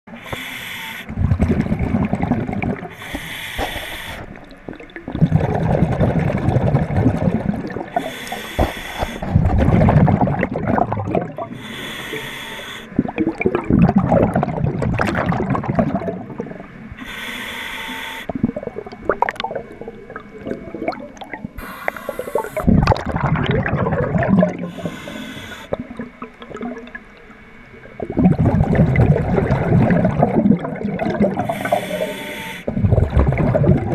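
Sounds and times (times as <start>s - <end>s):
scuba regulator breathing underwater: 0.1s - 4.4s, 7.9s - 10.2s, 11.3s - 13.1s, 16.9s - 18.4s, 21.6s - 22.9s, 24.4s - 26.0s, 31.2s - 33.6s
exhaled air bubbling: 0.1s - 33.9s
scraping clicks underwater: 3.0s - 4.4s, 8.0s - 9.4s.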